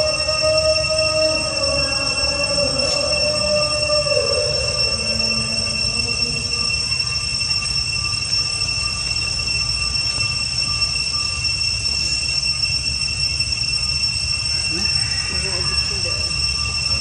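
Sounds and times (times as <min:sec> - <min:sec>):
high-pitched insect drone: 0:00.0 - 0:17.0.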